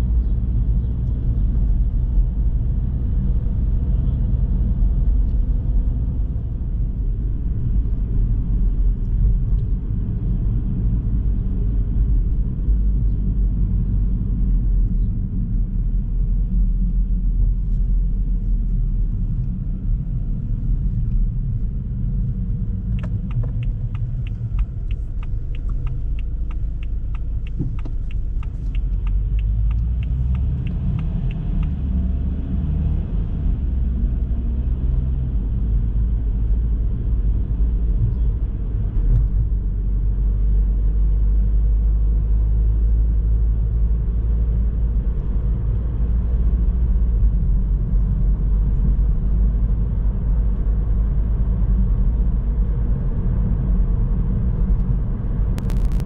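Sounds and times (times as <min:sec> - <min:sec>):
car road and engine rumble: 0:00.0 - 0:56.0
regular ticking: 0:22.9 - 0:31.8.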